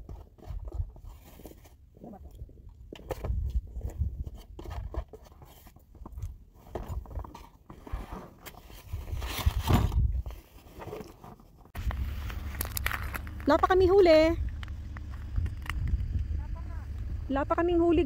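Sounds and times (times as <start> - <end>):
wind buffeting microphone: 12.0 - 18.0.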